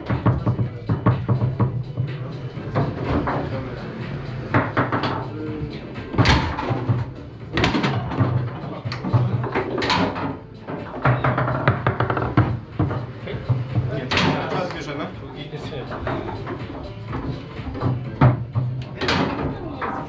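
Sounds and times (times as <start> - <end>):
foosball ball knocks and clacks: 0.0 - 5.4, 6.0 - 14.9, 15.8 - 20.0
background music: 0.0 - 20.0
voices: 12.8 - 20.0.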